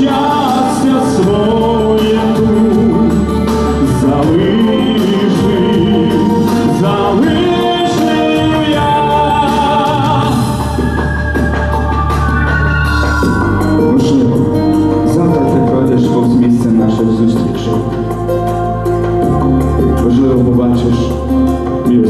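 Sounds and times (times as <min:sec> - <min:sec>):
man singing into microphone: 0:00.0 - 0:11.7
instrumental accompaniment: 0:00.0 - 0:22.0.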